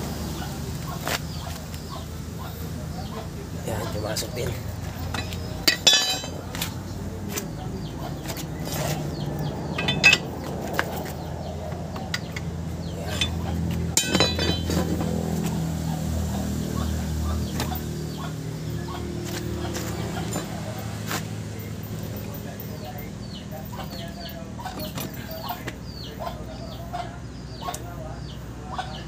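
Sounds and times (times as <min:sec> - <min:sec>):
metal clinks and taps: 0:05.0 - 0:06.7, 0:09.7 - 0:15.1.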